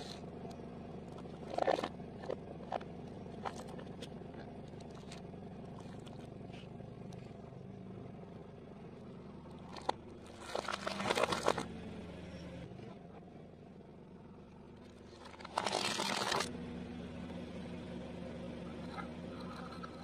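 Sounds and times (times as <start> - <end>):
car engine running: 0.0 - 20.0
plastic crunching under tyre: 1.1 - 5.2, 9.6 - 11.7, 15.0 - 16.5.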